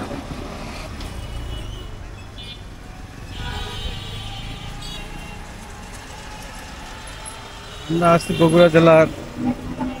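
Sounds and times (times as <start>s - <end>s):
street traffic rumble: 0.0s - 10.0s.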